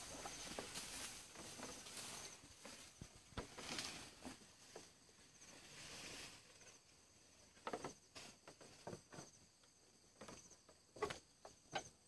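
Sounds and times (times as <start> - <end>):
soft rustles and crunches: 0.0 - 9.4
insects trilling: 0.0 - 12.0.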